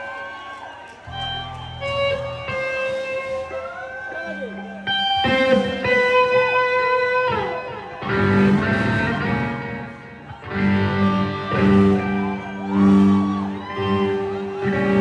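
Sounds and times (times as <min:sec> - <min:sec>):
electric guitar chords: 0:01.0 - 0:15.0
low bass notes: 0:08.1 - 0:15.0.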